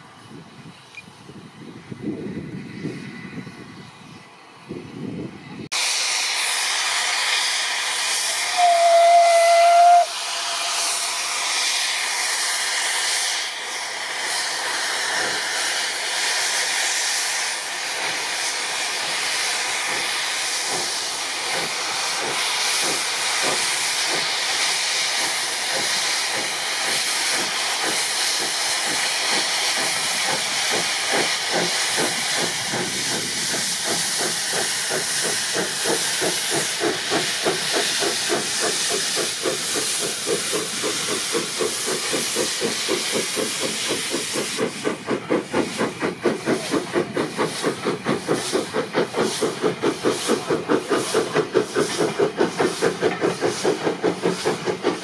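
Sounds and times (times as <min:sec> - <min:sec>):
steam hissing: 0:05.7 - 0:55.0
steam whistle blast: 0:08.2 - 0:11.1.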